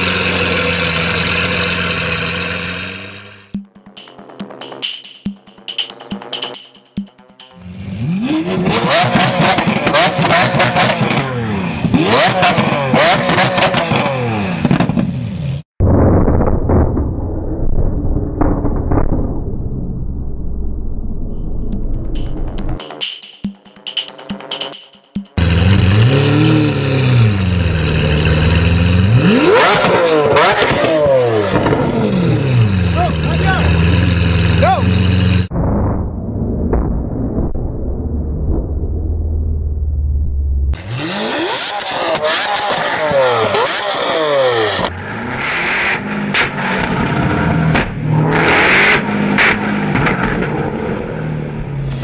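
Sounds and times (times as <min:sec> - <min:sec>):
car engine idling and revving: 0:00.0 - 0:04.2, 0:06.3 - 0:15.7, 0:25.2 - 0:35.5, 0:38.5 - 0:52.0.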